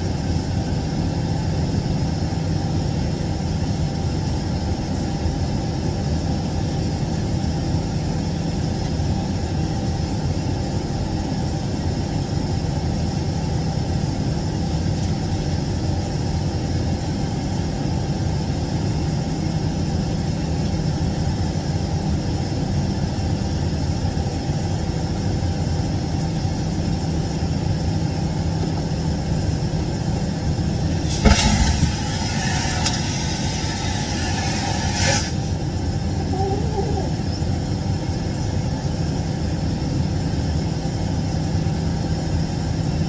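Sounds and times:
airliner cabin rumble: 0.0s - 43.0s
loud hiss: 30.9s - 35.6s.

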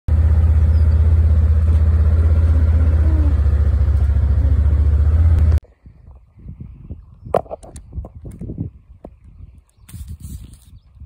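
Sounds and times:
small engine running: 0.1s - 5.6s.

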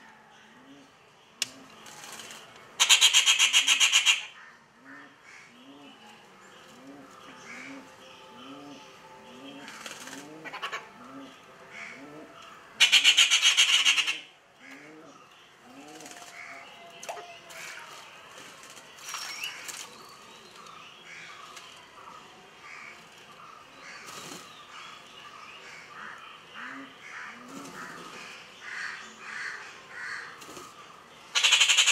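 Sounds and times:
harsh rattling bird call: 2.0s - 4.4s, 12.8s - 14.3s, 31.3s - 31.9s
bird cooing: 6.7s - 17.4s.

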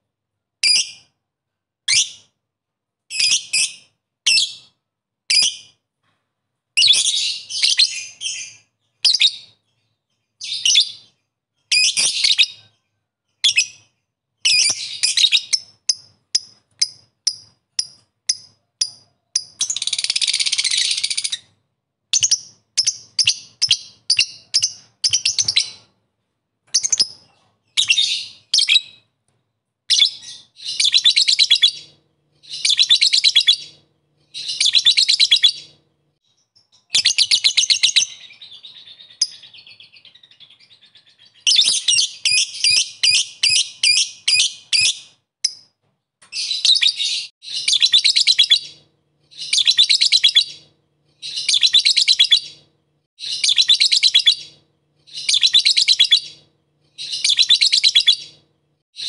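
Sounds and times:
lovebird chattering trill: 14.5s - 21.5s, 53.2s - 56.4s, 57.0s - 58.4s.

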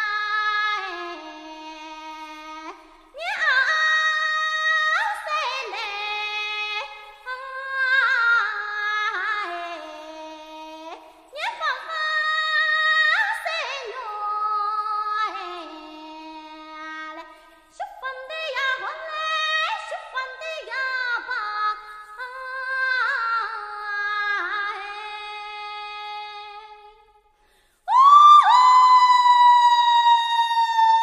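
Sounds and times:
woman singing slow melody: 27.9s - 31.0s.

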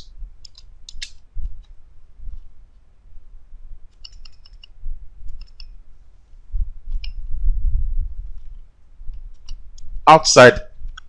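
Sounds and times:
low rumble: 6.4s - 9.2s.

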